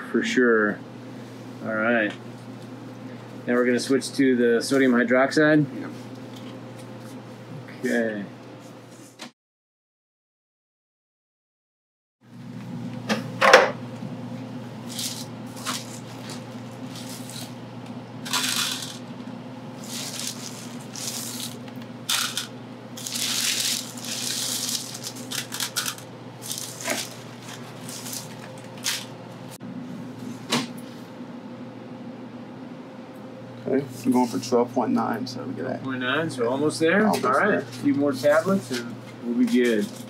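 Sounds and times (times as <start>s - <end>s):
steady low hum: 0.0s - 9.1s, 12.3s - 40.0s
pellets clicking and rattling: 14.9s - 16.0s, 18.3s - 19.0s, 19.8s - 29.1s
plastic bag liner crinkling: 18.3s - 19.0s, 19.8s - 29.1s.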